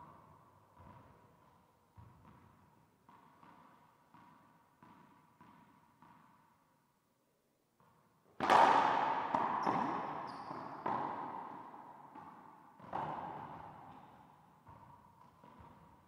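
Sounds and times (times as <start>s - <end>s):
racquetball hits echoing: 1.9s - 6.6s, 7.8s - 16.0s
shoe squeaks: 9.6s - 10.8s.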